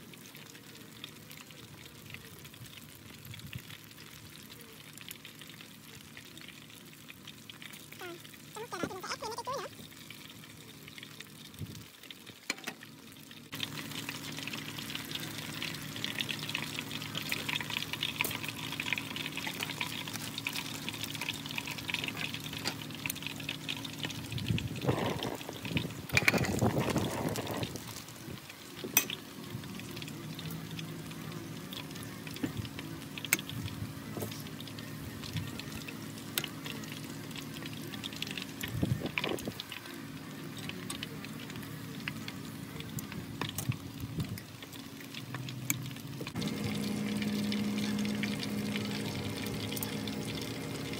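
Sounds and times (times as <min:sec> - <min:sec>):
deep-frying sizzle and pops: 0:00.0 - 0:50.9
low hum: 0:45.5 - 0:50.9.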